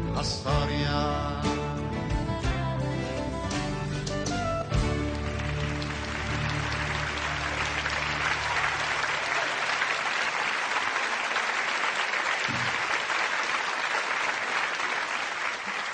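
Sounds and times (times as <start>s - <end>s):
audience applauding: 4.7s - 15.9s.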